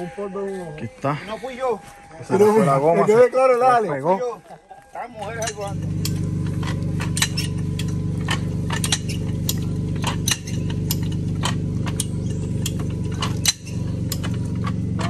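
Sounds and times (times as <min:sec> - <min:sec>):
motor running: 0:05.2 - 0:15.0
sharp metallic clicks: 0:05.2 - 0:15.0.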